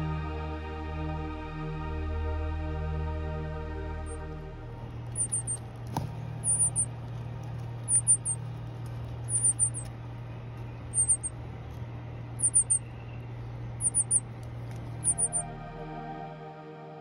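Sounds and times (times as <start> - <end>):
steady low hum: 0.0 - 17.0
nestling begging cheeps: 5.1 - 5.6, 6.4 - 6.9, 7.8 - 8.4, 9.3 - 9.9, 10.9 - 11.3, 12.4 - 12.9, 13.8 - 14.3, 15.0 - 15.5.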